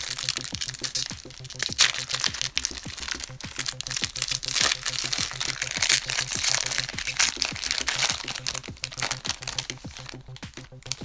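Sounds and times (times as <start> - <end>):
background music with steady beat: 0.0 - 11.0
foil wrapper crinkling and tearing: 0.0 - 11.0.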